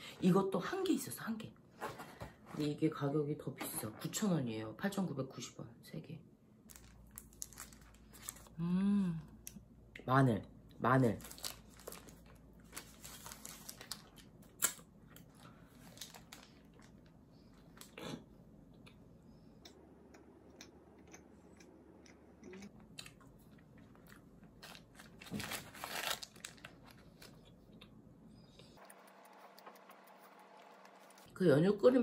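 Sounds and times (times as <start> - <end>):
small crunches: 6.7 - 8.5, 23.8 - 27.9
person chewing bread: 18.7 - 25.2.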